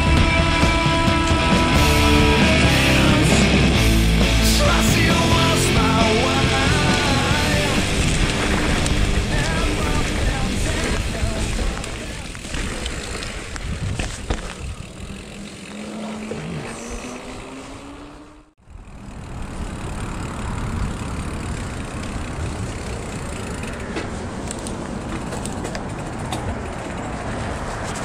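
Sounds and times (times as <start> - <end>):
rising whine: 0.0 - 11.9, 14.9 - 23.9
road and traffic noise: 0.0 - 28.0.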